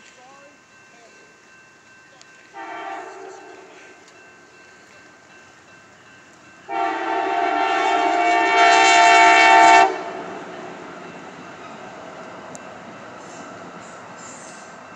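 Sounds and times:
train rumble: 0:00.0 - 0:14.9
train horn blast: 0:02.6 - 0:04.0, 0:06.7 - 0:10.6.

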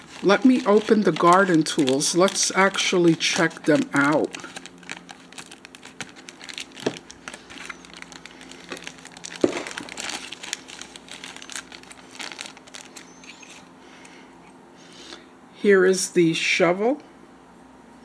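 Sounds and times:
plastic packaging crinkling: 0:00.0 - 0:13.7.

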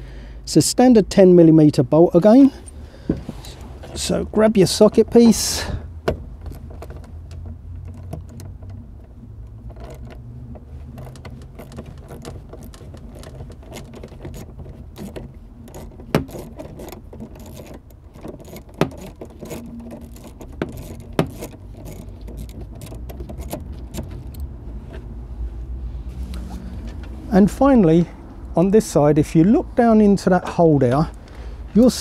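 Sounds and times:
socket wrench metallic clicking: 0:09.6 - 0:24.5.

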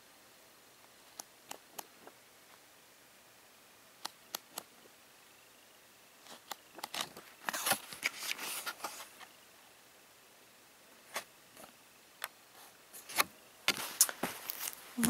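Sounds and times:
paper rustling and crinkling: 0:06.3 - 0:09.3, 0:13.0 - 0:15.0.

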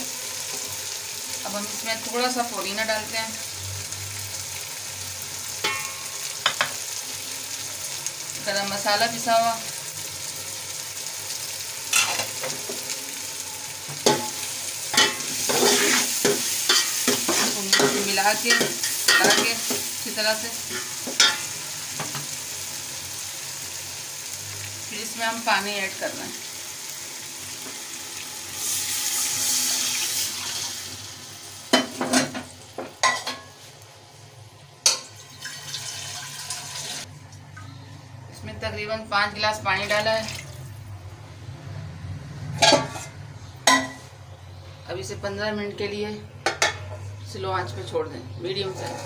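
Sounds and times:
lentils sizzling in oil: 0:00.0 - 0:37.1, 0:48.6 - 0:49.0
metal cookware clanking against pot: 0:05.6 - 0:06.7, 0:15.0 - 0:19.9, 0:20.7 - 0:21.5, 0:42.6 - 0:44.0
water poured sizzling in hot pot: 0:26.2 - 0:31.8, 0:35.0 - 0:37.1.

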